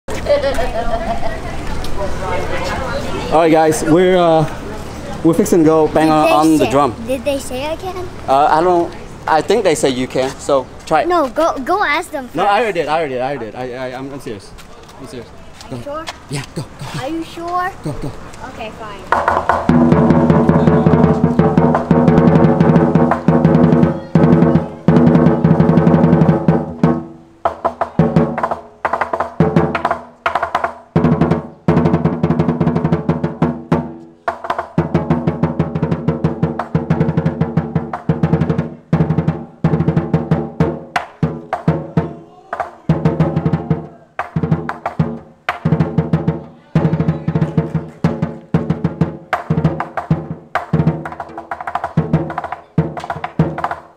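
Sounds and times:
large drum beaten with sticks: 0:19.1 - 0:53.9.

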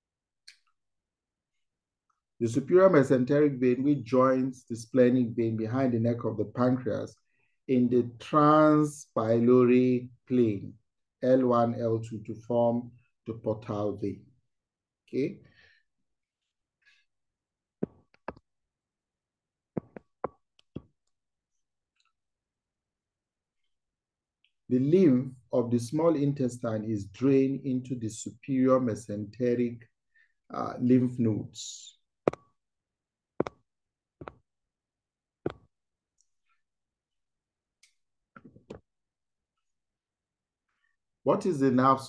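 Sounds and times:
stylus tapping on tablet screen: 0:17.8 - 0:18.5, 0:19.7 - 0:21.0, 0:32.3 - 0:32.6, 0:33.4 - 0:34.5, 0:35.4 - 0:35.8.

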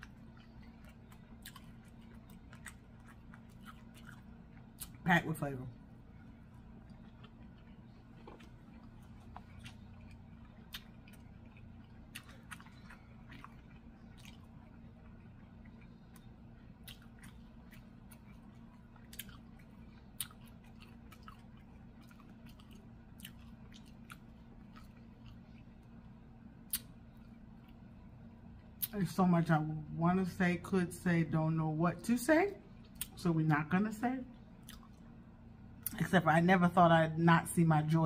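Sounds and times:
person chewing food: 0:00.0 - 0:05.0, 0:05.8 - 0:28.9, 0:34.4 - 0:36.0
low steady hum: 0:00.0 - 0:38.0.

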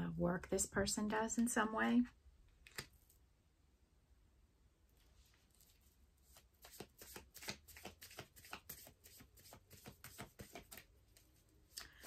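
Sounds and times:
cards being shuffled: 0:02.6 - 0:03.2, 0:05.3 - 0:12.0.

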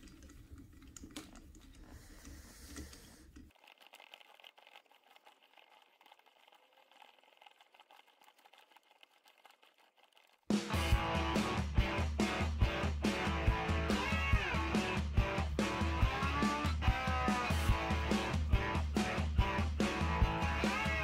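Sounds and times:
nut clicking and rattling: 0:03.5 - 0:10.4.

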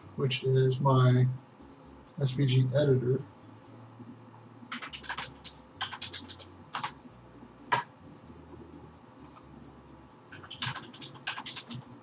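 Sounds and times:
computer keyboard clicking: 0:04.7 - 0:07.0, 0:10.3 - 0:12.0.

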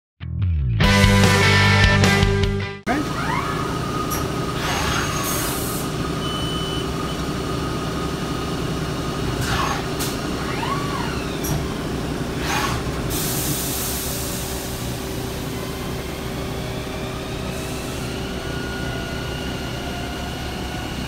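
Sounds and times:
servo whines: 0:02.9 - 0:07.4, 0:09.2 - 0:21.0
lathe machine hum: 0:02.9 - 0:21.0.

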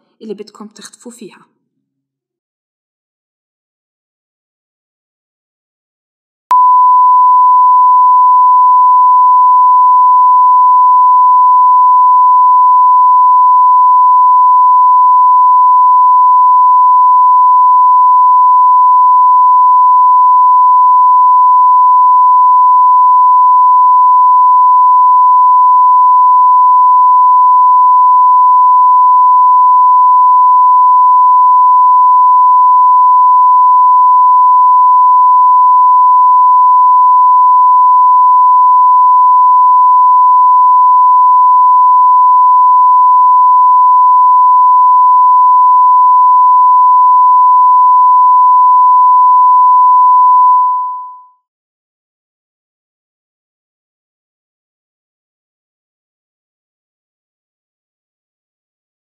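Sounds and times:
high-pitched electronic beep tone: 0:06.5 - 0:51.3.

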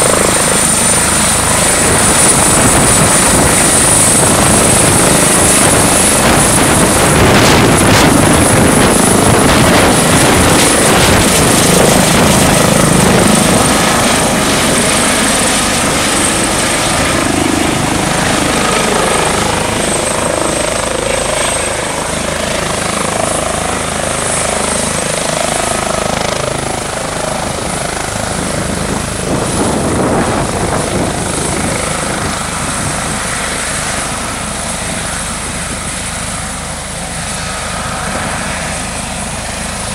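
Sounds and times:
helicopter rotor noise: 0:00.0 - 0:39.9
high turbine whine: 0:00.0 - 0:39.9.

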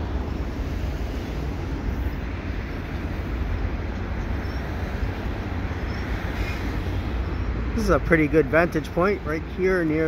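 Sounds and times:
train wheels rumbling on rails: 0:00.0 - 0:10.0.

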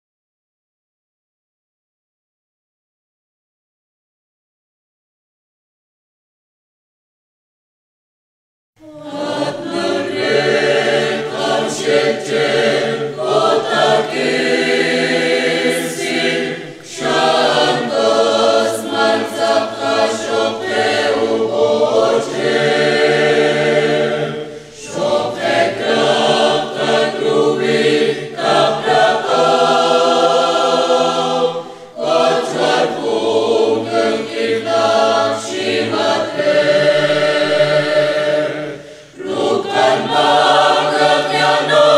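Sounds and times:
mixed choir singing a hymn: 0:08.8 - 0:41.9.

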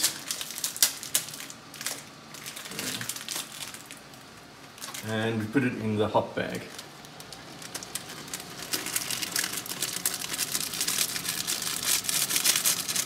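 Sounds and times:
foil packet crinkling: 0:00.0 - 0:13.0
pellets shaken into mesh bag: 0:07.8 - 0:13.0.

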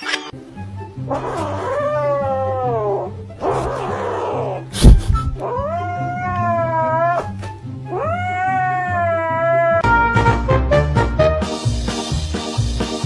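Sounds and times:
background music: 0:00.0 - 0:13.0
cat meowing: 0:01.1 - 0:03.7, 0:05.3 - 0:09.8
sharp thump: 0:04.8 - 0:05.4.

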